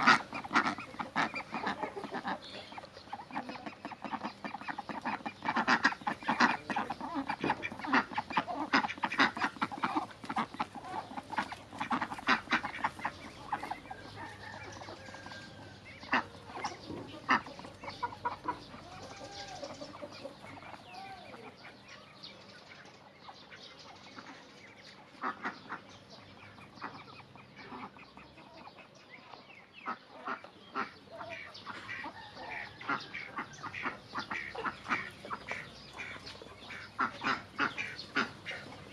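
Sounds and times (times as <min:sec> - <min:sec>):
chickens clucking: 0:00.0 - 0:38.9
ducks quacking: 0:00.0 - 0:38.9.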